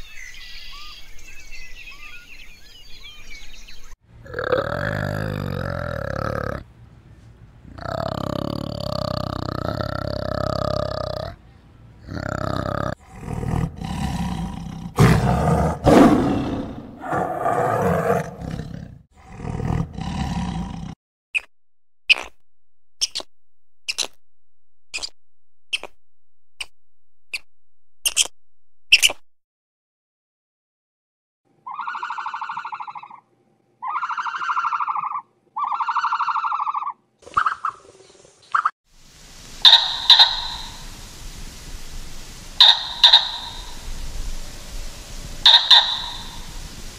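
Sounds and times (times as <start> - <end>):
large animal roaring calls: 4.2 - 6.6, 7.7 - 11.4, 12.0 - 21.0
animal fluttering trill call: 39.6 - 41.0, 42.6 - 46.9.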